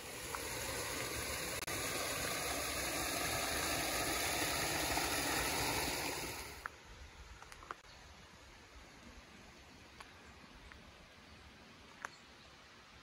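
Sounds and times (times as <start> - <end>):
creek water rushing: 0.0 - 6.7.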